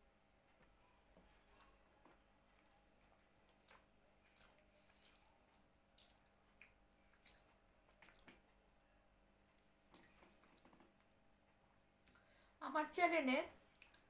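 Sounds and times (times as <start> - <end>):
chewing: 3.0 - 8.5, 9.8 - 11.1, 13.7 - 14.0
wet squishes of eating by hand: 3.0 - 8.6, 9.6 - 11.1, 13.6 - 14.0.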